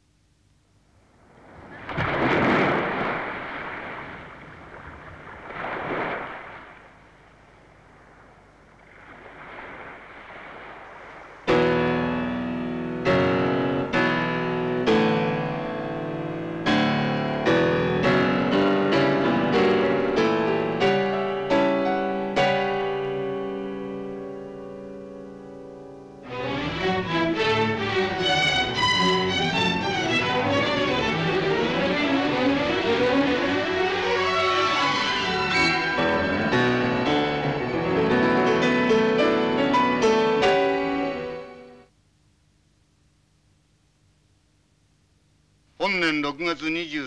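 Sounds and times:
sea surf: 1.4 - 7.1, 8.7 - 12.5, 26.2 - 41.4
slow piano chords: 11.5 - 41.8.

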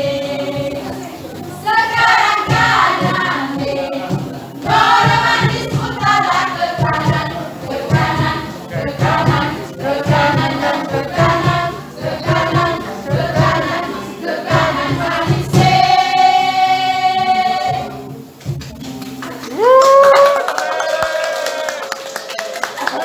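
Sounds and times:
small choir singing: 0.0 - 18.2.

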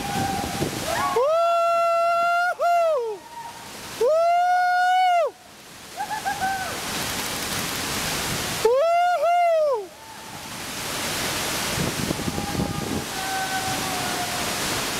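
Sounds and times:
person whooping: 0.0 - 5.4, 8.6 - 10.3, 12.2 - 14.6
waterfall roaring: 0.0 - 14.9.

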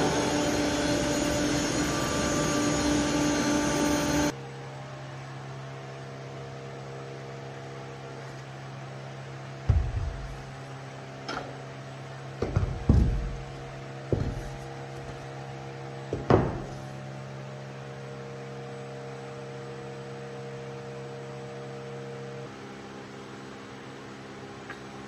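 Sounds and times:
machinery electric hum: 0.0 - 25.0
low thumps of panel handling: 9.7 - 10.5, 12.4 - 14.6.

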